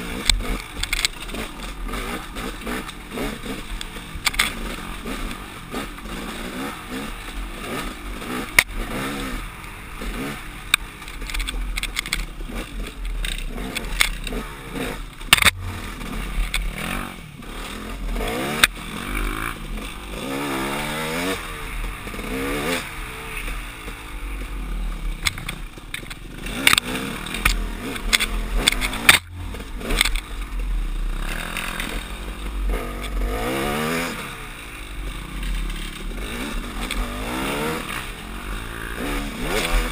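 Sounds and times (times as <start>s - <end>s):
dirt bike engine revving: 0.0s - 39.9s
bike knocks and clatter: 10.0s - 17.0s, 25.2s - 30.5s.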